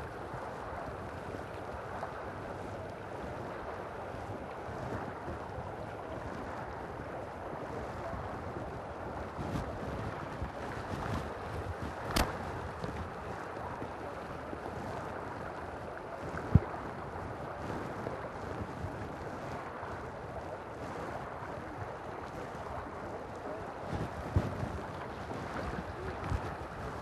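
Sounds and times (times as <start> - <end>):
wind buffeting microphone: 0.0 - 27.0
sharp click: 12.1 - 12.4.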